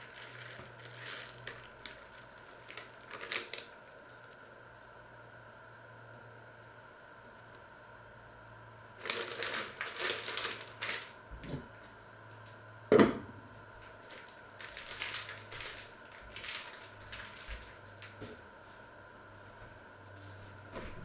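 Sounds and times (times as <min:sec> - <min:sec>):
plastic bag crinkling: 0:00.0 - 0:04.4, 0:09.0 - 0:11.2, 0:13.8 - 0:18.2.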